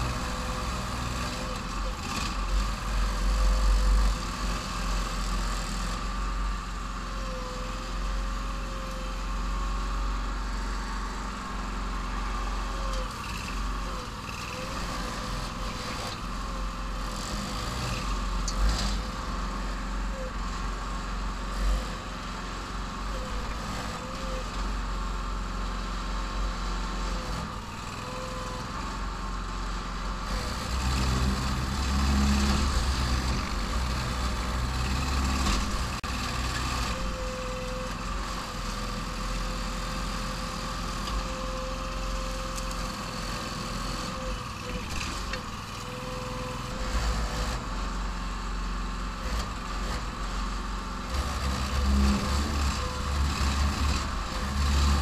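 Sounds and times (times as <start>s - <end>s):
excavator engine running: 0.0s - 55.0s
hydraulic boom and bucket digging: 30.2s - 38.8s, 42.2s - 55.0s.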